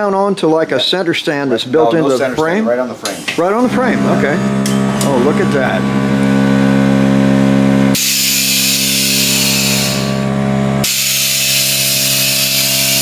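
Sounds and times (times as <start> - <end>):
steady electric hum: 1.6 - 13.0
air suspension hissing: 8.0 - 10.2, 10.8 - 13.0.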